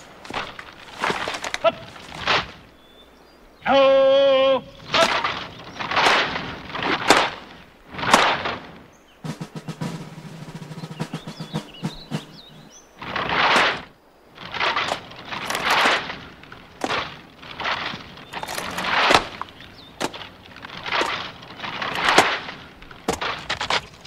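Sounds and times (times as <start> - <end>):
rifles slapped into hands: 4.9 - 7.4.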